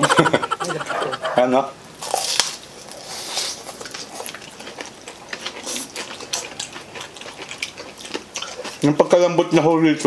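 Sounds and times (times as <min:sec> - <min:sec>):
wet chewing and slurping: 0:02.0 - 0:09.0.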